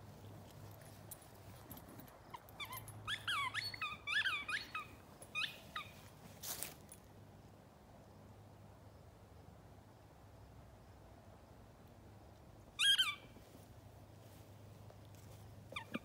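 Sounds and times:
dog whining: 2.3s - 5.9s, 15.7s - 16.0s.

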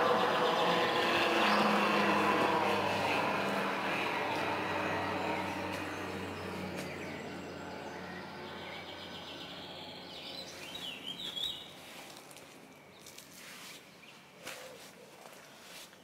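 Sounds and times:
low engine hum: 0.0s - 13.2s
small bird chirping: 5.4s - 11.8s.

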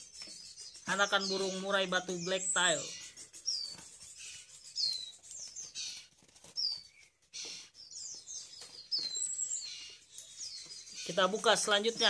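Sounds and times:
nestling birds cheeping: 0.0s - 12.0s
rustling: 3.6s - 12.0s.

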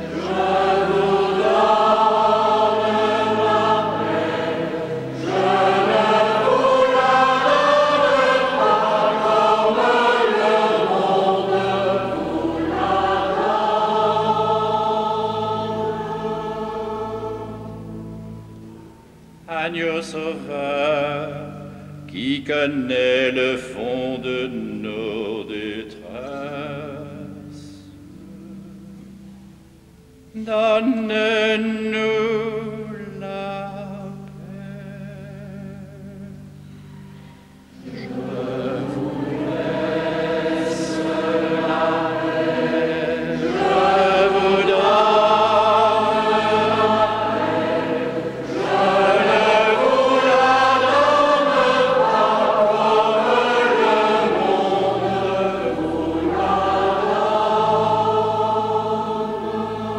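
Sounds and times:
choir chanting: 0.0s - 18.3s, 37.8s - 59.9s
low held notes: 0.0s - 59.9s.

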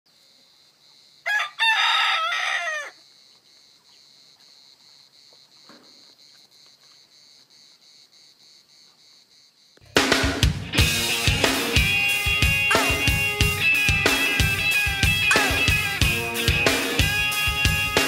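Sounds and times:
insects chirping: 0.1s - 9.9s
rooster crowing: 1.2s - 3.0s.

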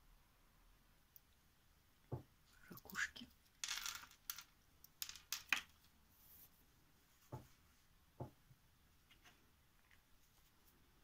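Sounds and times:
soft knocks on tabletop: 8.2s - 8.4s.

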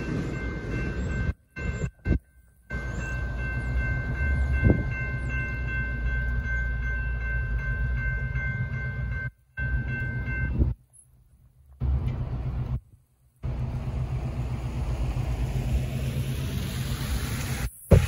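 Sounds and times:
railroad crossing bell ringing: 0.0s - 12.8s.

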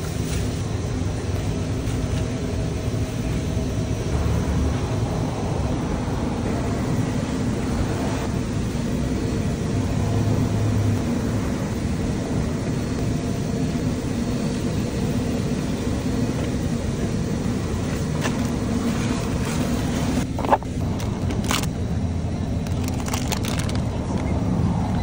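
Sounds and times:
car engine hum: 0.0s - 25.0s
road noise: 0.0s - 25.0s.

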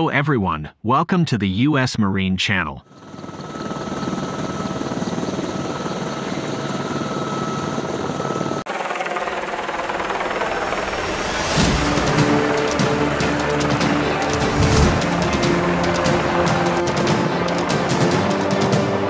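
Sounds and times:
helicopter rotor beating: 2.8s - 19.0s
turbine engine whine: 2.9s - 19.0s
hissy rotor noise: 8.7s - 19.0s.

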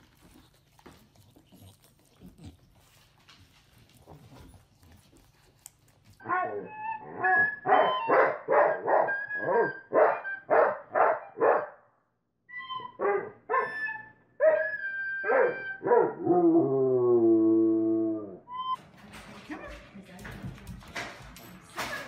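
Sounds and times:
dog howling: 6.2s - 8.2s
dog barking: 6.2s - 11.9s, 13.0s - 13.8s, 15.2s - 16.2s.

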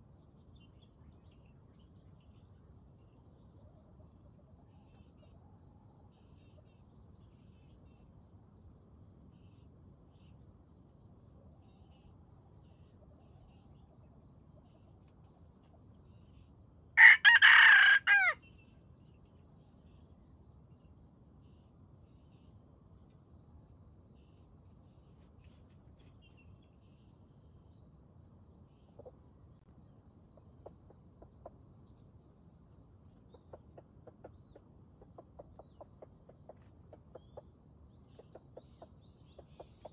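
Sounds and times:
crickets chirping: 0.0s - 39.9s
rooster crowing: 17.0s - 18.4s
faint clucks: 28.8s - 29.2s, 30.3s - 31.8s, 33.2s - 39.9s.

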